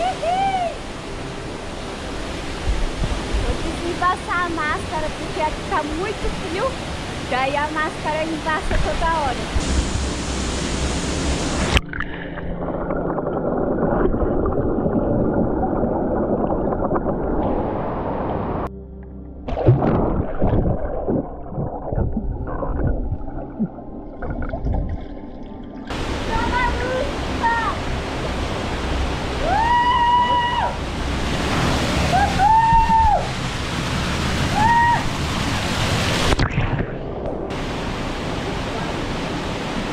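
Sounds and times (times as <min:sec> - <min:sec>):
person crying out high-pitched: 0:00.0 - 0:00.8
rushing waterfall: 0:00.0 - 0:12.1, 0:25.9 - 0:39.9
underwater gurgling and bubbles: 0:08.4 - 0:18.7, 0:19.4 - 0:29.4, 0:35.2 - 0:38.6
waterfall pouring into pool: 0:09.5 - 0:11.8, 0:25.9 - 0:36.4.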